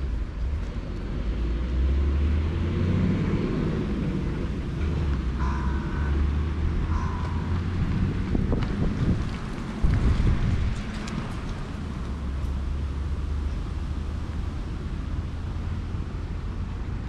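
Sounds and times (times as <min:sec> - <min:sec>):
wind rumbling on microphone: 0:03.4 - 0:17.0.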